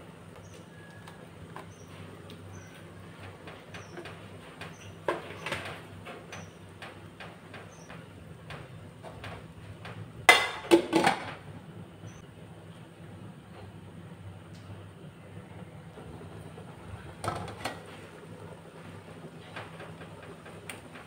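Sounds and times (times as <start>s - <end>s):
pot lid clattering on pot: 10.3s - 11.4s.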